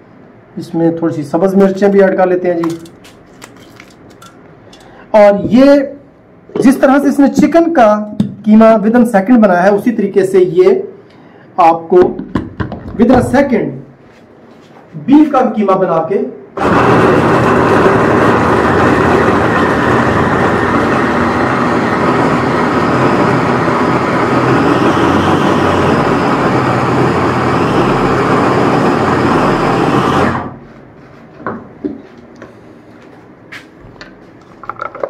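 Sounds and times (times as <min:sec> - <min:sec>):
electric food chopper running: 0:16.6 - 0:30.6.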